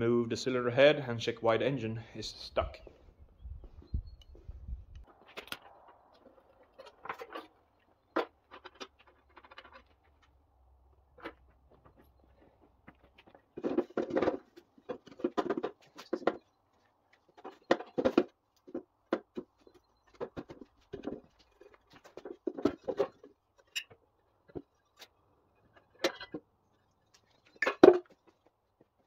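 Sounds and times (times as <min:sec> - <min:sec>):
knocks clicks and scrapes on metal: 0:05.0 - 0:10.4, 0:11.0 - 0:26.5.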